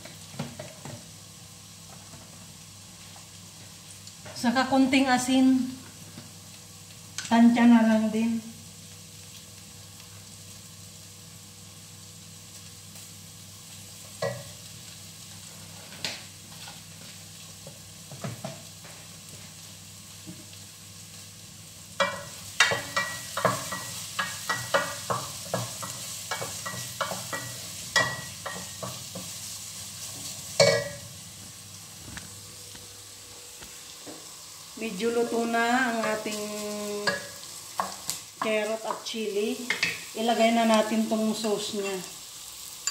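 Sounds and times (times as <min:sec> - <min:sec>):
vegetables frying in oil: 0:00.0 - 0:42.9.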